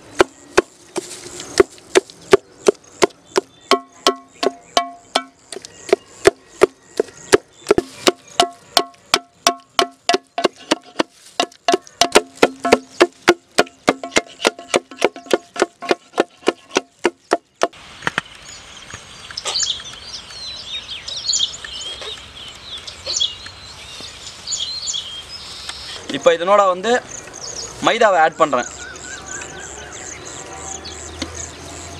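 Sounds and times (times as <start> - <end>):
birds chirping: 0.0 - 31.9
masher pounding in metal pot: 1.6 - 17.8.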